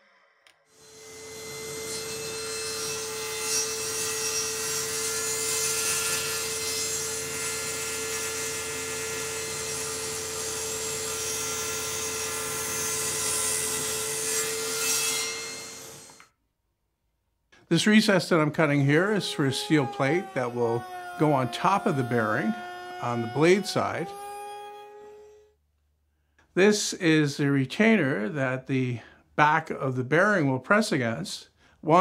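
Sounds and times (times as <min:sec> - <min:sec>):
table saw whining: 0:00.0 - 0:16.3, 0:17.8 - 0:25.6.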